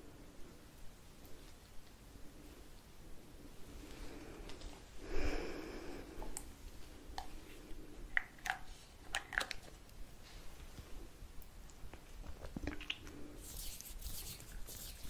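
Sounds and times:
breathy exhale: 0:03.9 - 0:06.4
wet mouth clicks and lip smacks: 0:11.6 - 0:13.2.

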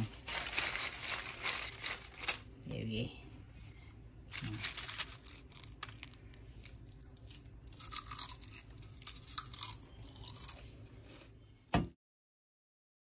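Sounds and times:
chips crunching and crackling: 0:00.0 - 0:02.6, 0:04.3 - 0:10.6.

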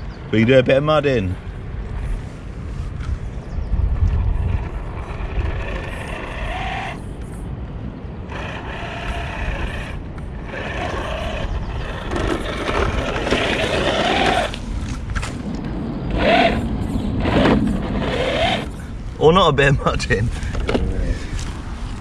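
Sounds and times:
wind rumble on microphone: 0:00.0 - 0:22.0
electric motor whining in bursts: 0:04.4 - 0:07.0, 0:08.3 - 0:14.6, 0:16.1 - 0:18.8.

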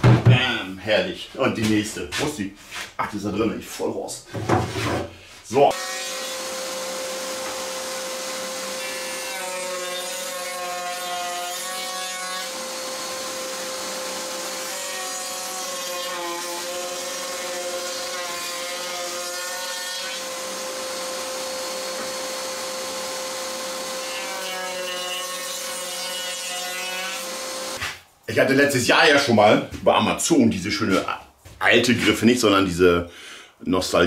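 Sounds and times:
power drill whining: 0:06.1 - 0:09.2, 0:12.4 - 0:14.7, 0:20.2 - 0:24.0, 0:27.2 - 0:27.8.

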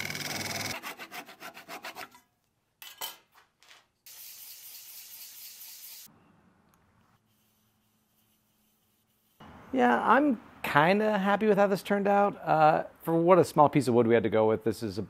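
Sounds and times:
sandpaper rubbing on wood: 0:07.2 - 0:09.4.

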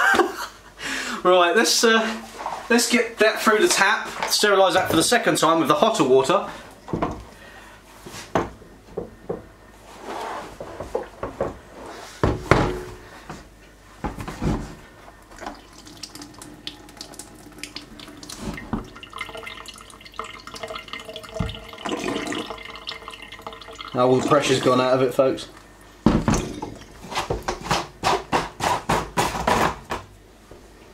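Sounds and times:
barrel knocks and clunks: 0:12.2 - 0:13.0, 0:26.0 - 0:27.6
water running into a steel sink: 0:15.2 - 0:25.6.

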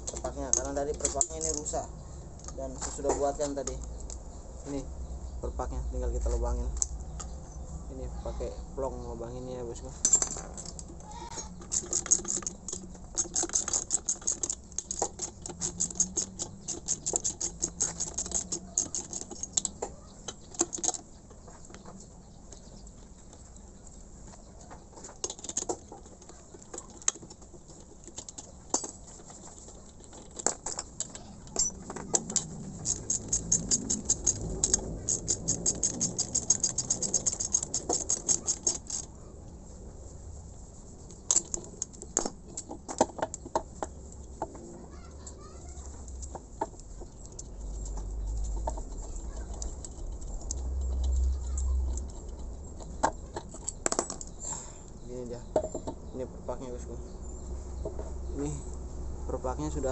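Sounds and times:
metal clicks and knocks: 0:10.0 - 0:21.1, 0:24.9 - 0:39.1, 0:41.1 - 0:44.7, 0:45.9 - 0:54.4, 0:55.4 - 0:56.1
ratchet wrench clicking: 0:11.4 - 0:19.7, 0:31.6 - 0:39.1.

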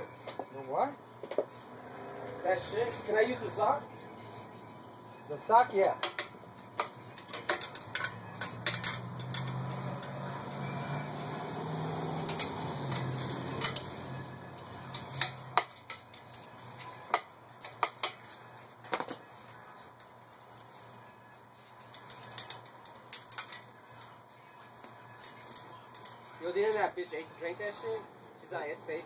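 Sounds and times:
metallic clicks of tools and parts: 0:06.0 - 0:10.2.

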